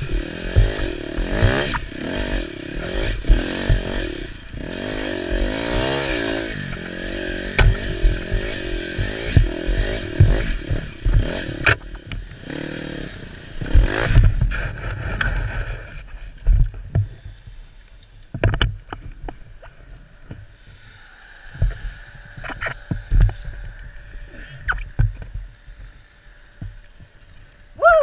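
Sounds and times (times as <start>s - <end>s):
thumps of dirt bike being handled: 0.0s - 4.6s, 5.2s - 12.3s, 13.6s - 17.2s, 18.3s - 20.5s.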